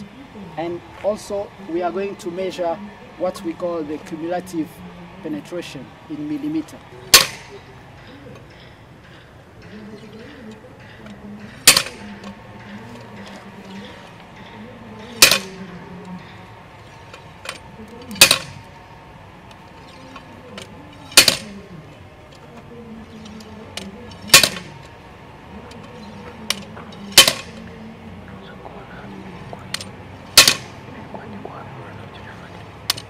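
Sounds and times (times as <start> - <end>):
steel hammer clanking on anvil: 7.1 - 7.6, 10.8 - 12.3, 15.0 - 15.7, 17.4 - 18.7, 19.8 - 21.6, 23.2 - 24.9, 26.4 - 27.6, 29.7 - 30.8.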